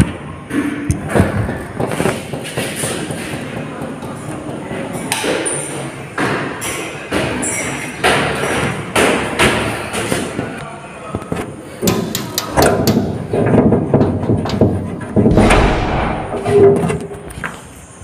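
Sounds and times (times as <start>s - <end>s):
heavy thuds: 15.2s - 17.0s.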